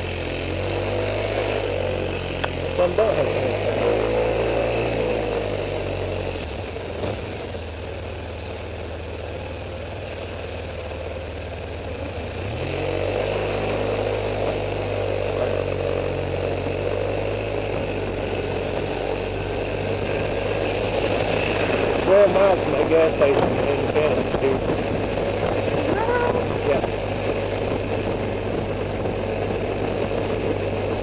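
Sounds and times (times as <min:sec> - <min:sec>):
scooter engine revving: 0:00.0 - 0:31.0
wind and road noise: 0:00.0 - 0:31.0.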